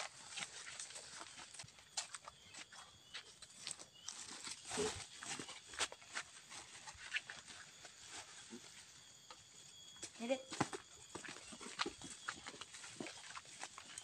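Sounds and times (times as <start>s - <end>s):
footsteps on leaf litter: 11.1s - 14.0s.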